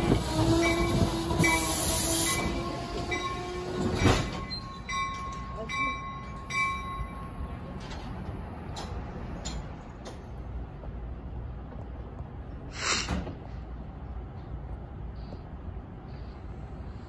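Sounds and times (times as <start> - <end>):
idling train rumble: 0.0 - 17.0
air hiss puffs: 12.7 - 13.3.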